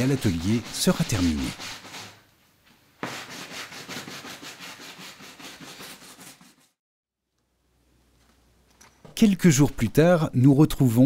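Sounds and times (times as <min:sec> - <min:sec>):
hand brush scrubbing glass: 0:00.0 - 0:02.2.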